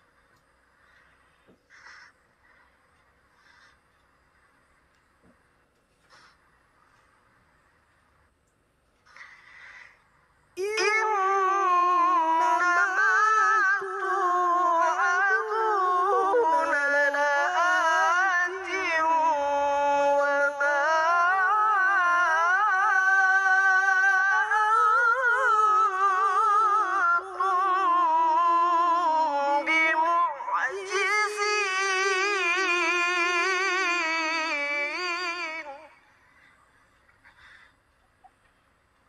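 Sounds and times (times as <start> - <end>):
man reciting melodically: 10.6 - 36.2.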